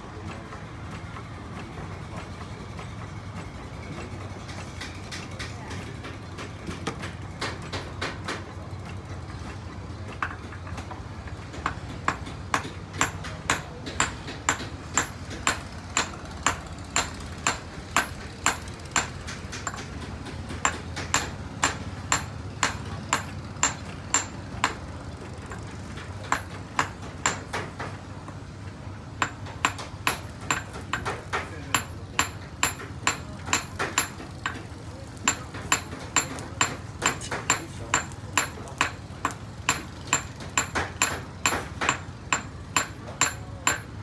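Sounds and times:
hammer tapping metal: 10.1 - 24.9, 25.5 - 28.4, 29.2 - 44.0.

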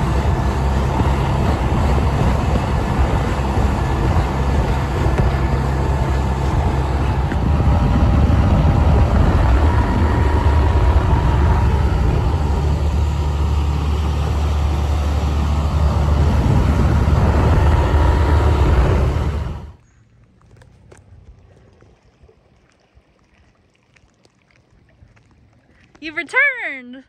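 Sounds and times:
water rushing past: 0.0 - 19.8
wind rushing: 0.0 - 19.8
outboard motor running: 0.0 - 26.5.

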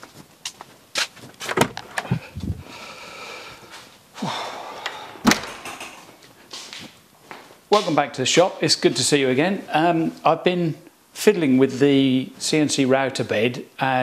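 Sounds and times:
door shutting with a thud: 1.5 - 2.1, 5.2 - 6.1
door handle and latch clicks: 5.2 - 6.0.

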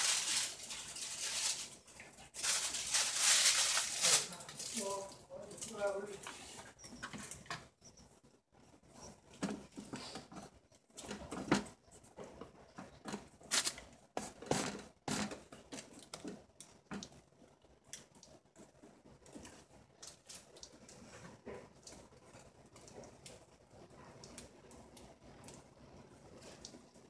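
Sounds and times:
plastic bag crinkling: 0.0 - 6.2, 13.0 - 17.1.

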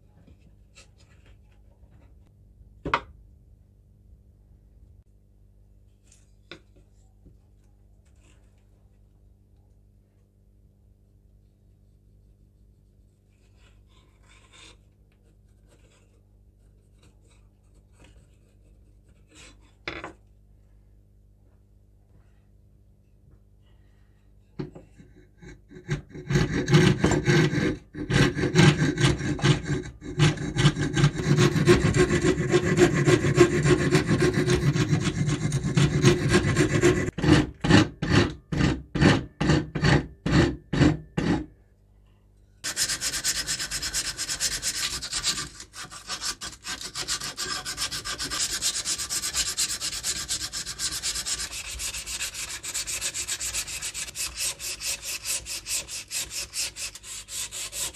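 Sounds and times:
file scraping wood: 13.4 - 14.9, 24.9 - 41.5, 42.6 - 57.9
sandpaper rubbing wood: 28.2 - 37.4, 42.6 - 57.9.

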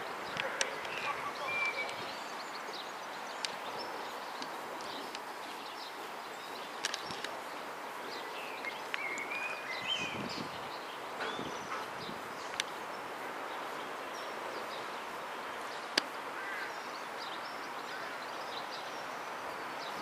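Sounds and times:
outdoor background noise: 0.0 - 20.0
bird chirps: 0.2 - 7.2, 8.1 - 13.0
faint clicks: 3.4 - 3.7, 4.3 - 5.3, 6.8 - 7.4, 8.6 - 9.3, 12.5 - 12.8, 15.9 - 16.2.

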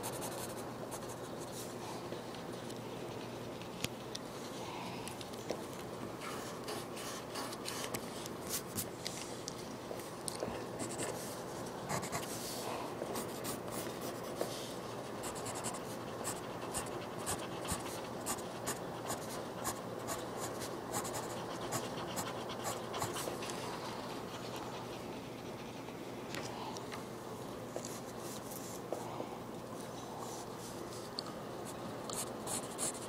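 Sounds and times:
pencil scratching on paper: 0.0 - 1.5, 11.9 - 12.5, 15.2 - 23.4, 32.2 - 33.0.

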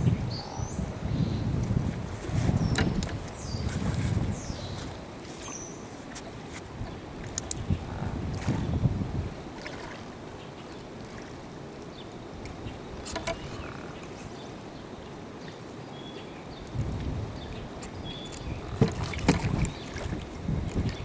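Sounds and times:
wind buffeting microphone: 0.0 - 10.4, 16.5 - 21.0.

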